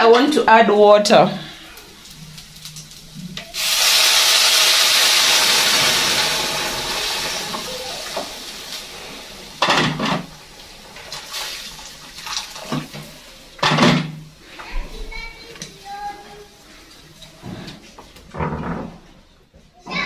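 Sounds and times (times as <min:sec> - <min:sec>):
water pouring from a kettle: 0:01.5 - 0:14.3.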